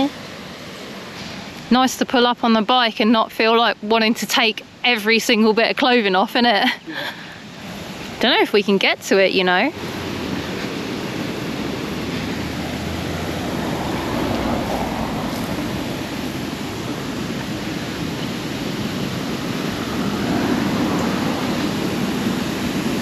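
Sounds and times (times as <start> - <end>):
stream spilling over a weir: 0.0 - 23.0.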